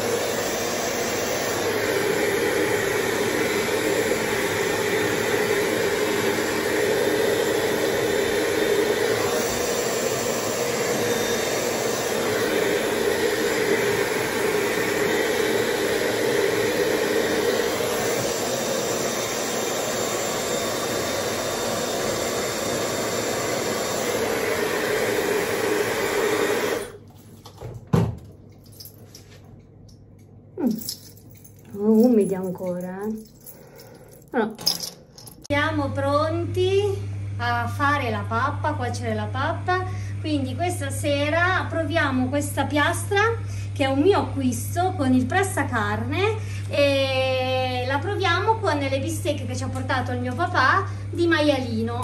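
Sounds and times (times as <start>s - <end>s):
hair dryer blowing: 0.0s - 27.1s.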